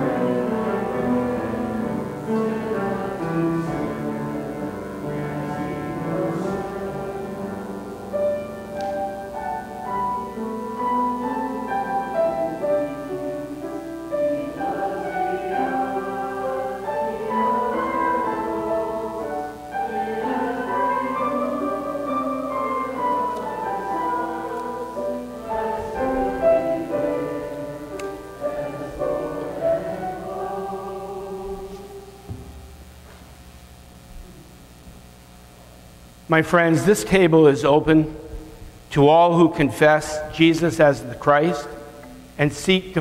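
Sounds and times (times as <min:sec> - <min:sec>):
slow piano music: 0:00.0 - 0:32.9.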